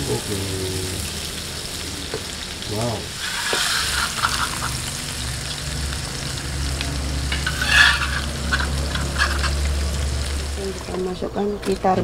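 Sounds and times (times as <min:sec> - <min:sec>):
light sizzling: 0:00.0 - 0:12.0
metal spatula scraping wok: 0:03.1 - 0:04.9, 0:07.2 - 0:09.8.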